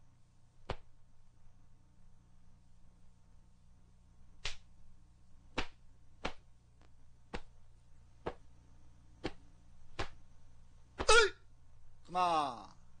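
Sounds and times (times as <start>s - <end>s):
steady low hum: 0.0s - 13.0s
uniform fabric snapping: 0.7s - 0.9s, 4.4s - 4.7s, 5.6s - 6.4s, 10.0s - 10.2s.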